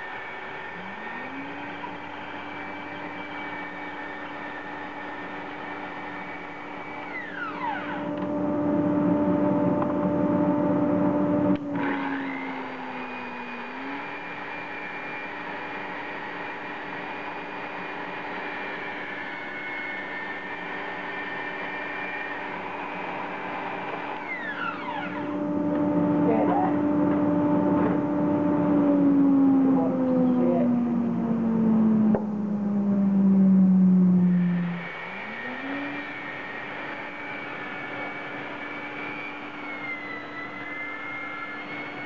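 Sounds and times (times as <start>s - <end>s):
bandsaw cutting timber: 0.0s - 8.3s, 11.6s - 26.9s, 34.6s - 42.0s.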